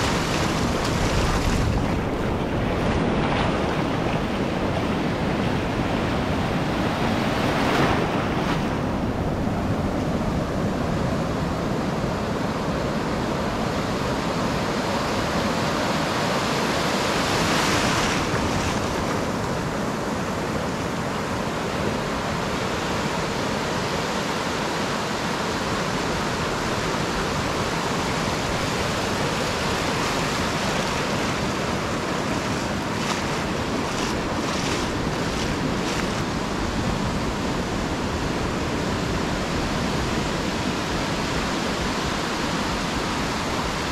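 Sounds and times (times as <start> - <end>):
small waves breaking: 0.0 - 11.4, 21.6 - 43.9
surf washing over sand: 0.0 - 43.9.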